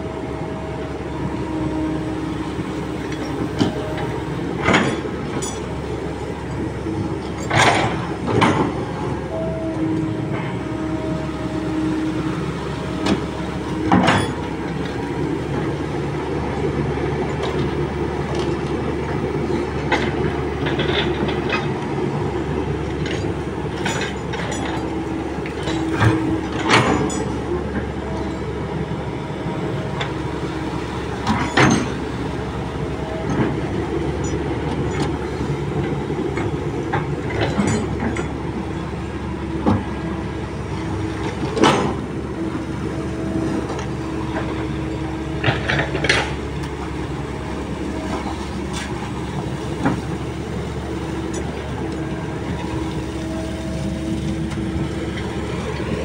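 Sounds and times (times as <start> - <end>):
excavator diesel engine running: 0.0 - 56.0
excavator bucket clanks: 3.0 - 11.2, 13.0 - 15.8, 19.5 - 22.0, 22.8 - 28.6, 31.2 - 32.4, 33.0 - 40.1, 40.7 - 56.0.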